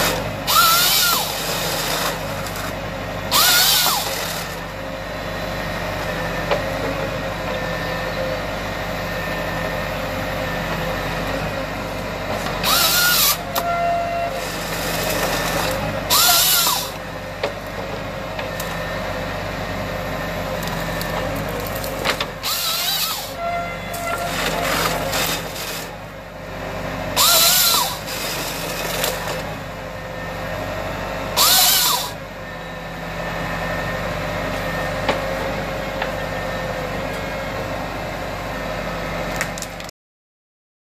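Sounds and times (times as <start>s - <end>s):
chainsaw cross-cuts: 0.0s - 4.6s, 12.6s - 13.7s, 14.4s - 17.0s, 21.5s - 23.4s, 24.2s - 26.0s, 27.2s - 29.5s, 31.3s - 32.2s
tractor diesel engine running: 0.0s - 39.9s.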